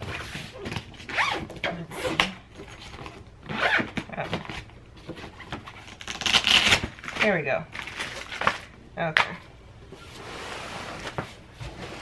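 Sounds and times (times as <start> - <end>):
zipper rasping open: 3.5 - 4.0.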